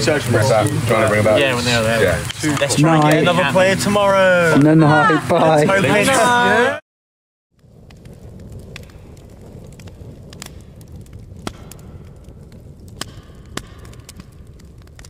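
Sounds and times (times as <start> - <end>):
crackling pops from logs: 0.0 - 3.5, 7.6 - 15.0
campfire rumbling: 0.0 - 6.8, 7.5 - 15.0.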